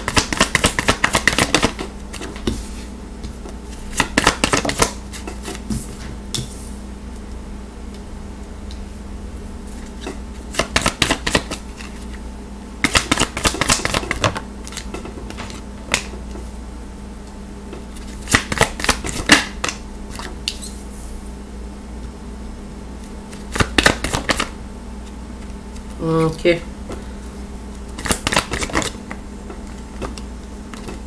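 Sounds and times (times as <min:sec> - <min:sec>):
steady low hum: 0:00.0 - 0:31.0
cards being shuffled: 0:03.9 - 0:05.6.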